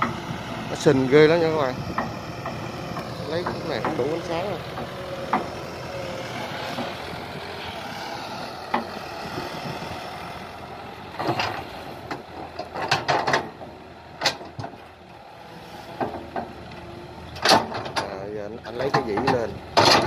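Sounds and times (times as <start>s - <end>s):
excavator running: 0.0s - 20.0s
sharp metal clanks and knocks: 11.2s - 14.8s, 17.4s - 18.1s, 18.8s - 20.0s.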